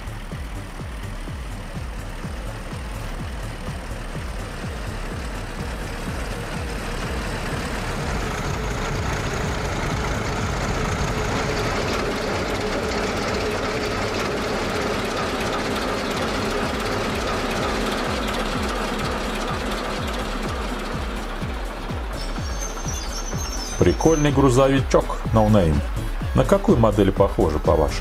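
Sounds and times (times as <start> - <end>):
model train wheels rattling: 0.1 - 24.6.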